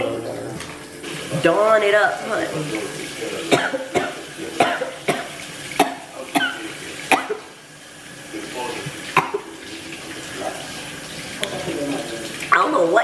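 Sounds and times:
woman coughing hard: 3.5 - 7.5.

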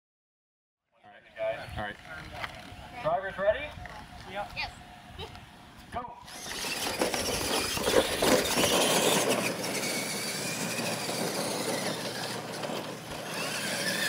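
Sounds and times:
toy truck electric motors whining: 6.2 - 14.0.

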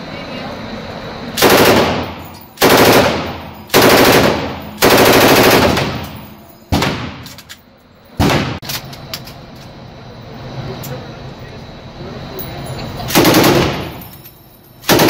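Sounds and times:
automatic gunfire bursts indoors: 1.4 - 7.2, 13.1 - 14.1.

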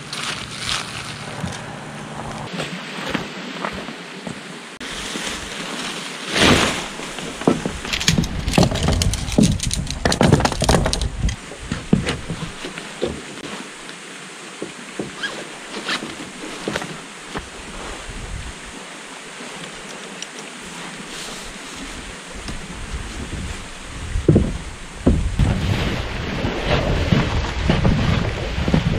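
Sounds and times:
mountain stream rushing: 0.0 - 28.9
knocks rustles and clatter: 5.2 - 13.4.

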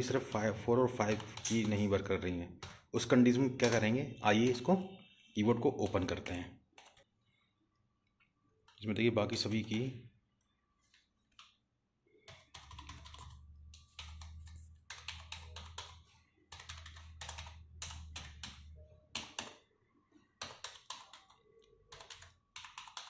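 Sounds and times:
keyboard keys clicking: 12.3 - 19.6, 20.4 - 23.0.

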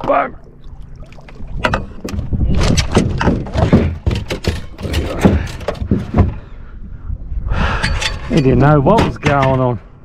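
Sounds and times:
fish thrashing in a boat: 0.8 - 6.5.

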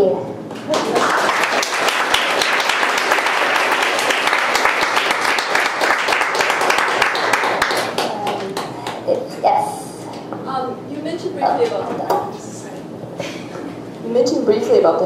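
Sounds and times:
audience applauding: 0.6 - 9.1.

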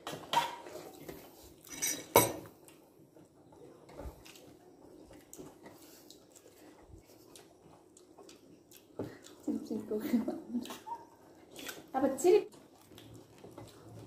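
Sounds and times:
spoon clinking against plate: 1.7 - 2.5.

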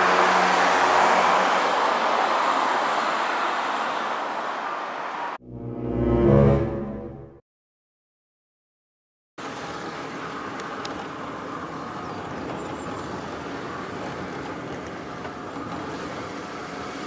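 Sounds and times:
car road and engine noise: 0.0 - 5.4, 9.4 - 17.0.

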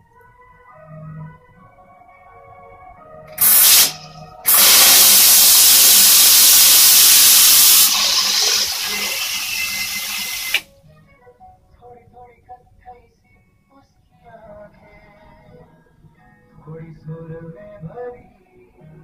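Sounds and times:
water spray into toilet bowl: 3.4 - 10.6.

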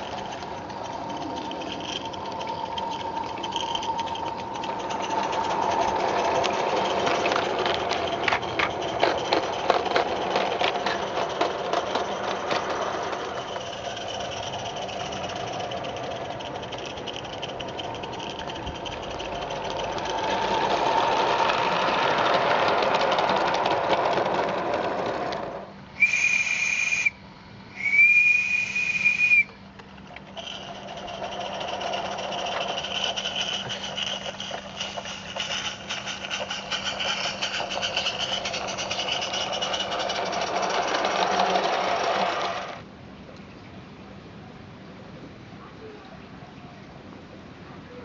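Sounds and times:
model steam locomotive clattering: 0.0 - 27.1, 27.8 - 42.9
steam whistle blasts: 26.0 - 27.2, 27.8 - 29.5.

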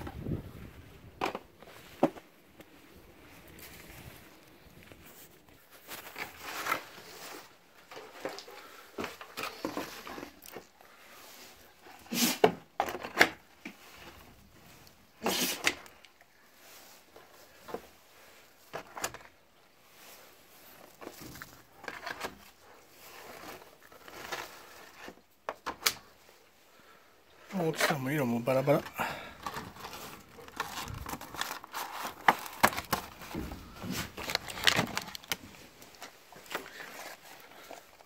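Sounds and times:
plastic egg pack crinkling: 27.8 - 38.0.

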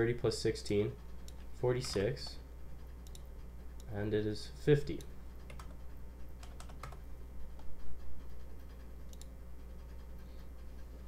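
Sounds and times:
steady low hum: 0.0 - 11.0
computer keyboard keystrokes: 5.4 - 5.8, 6.4 - 7.0.

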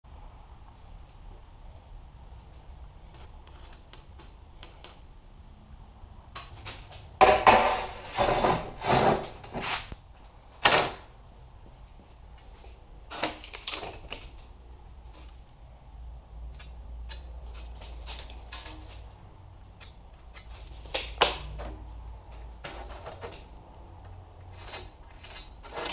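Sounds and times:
steel beam scraping on steel: 7.4 - 9.9.

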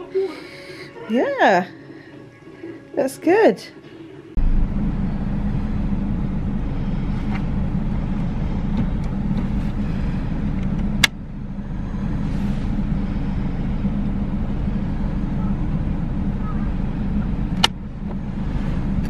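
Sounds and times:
car engine idling: 4.4 - 19.0.

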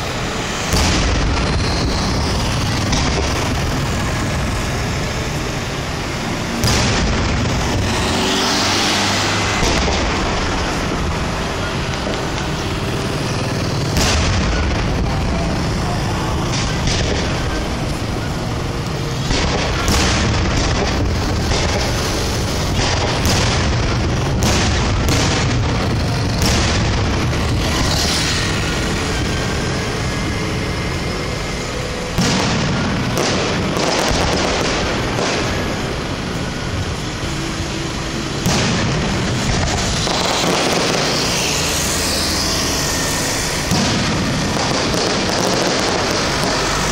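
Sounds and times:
firework bangs: 0.0 - 46.9
steady background noise: 0.0 - 46.9
fireworks din of shells: 19.2 - 30.7, 31.4 - 36.1, 38.3 - 46.9.

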